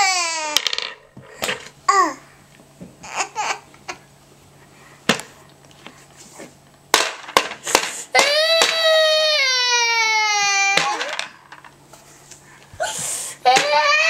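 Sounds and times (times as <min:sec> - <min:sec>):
toddler crying: 0:00.0 - 0:00.8, 0:08.2 - 0:11.4, 0:12.8 - 0:14.0.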